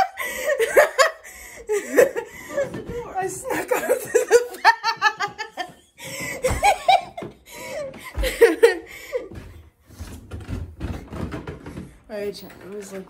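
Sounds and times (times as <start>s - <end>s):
rhythmic laughter: 3.5s - 9.3s.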